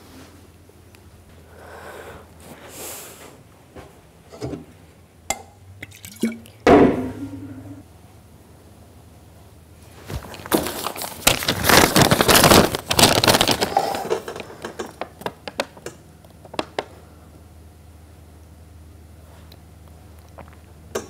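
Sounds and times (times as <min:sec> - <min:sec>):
paper rustling and crinkling: 0:09.9 - 0:15.8.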